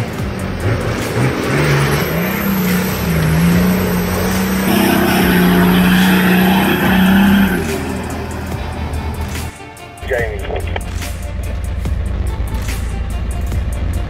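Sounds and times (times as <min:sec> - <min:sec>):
engine revving under load: 0:00.0 - 0:09.6.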